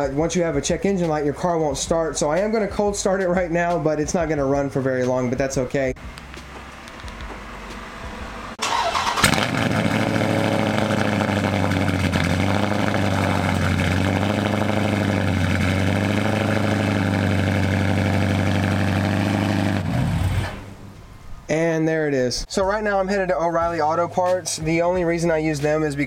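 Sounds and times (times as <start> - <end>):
car engine starting and idling: 6.0 - 21.3.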